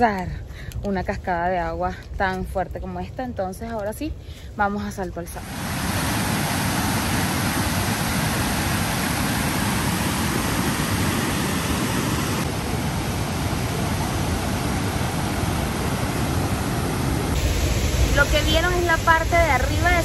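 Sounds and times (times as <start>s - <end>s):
waterfall rushing over rocks: 5.4s - 20.0s.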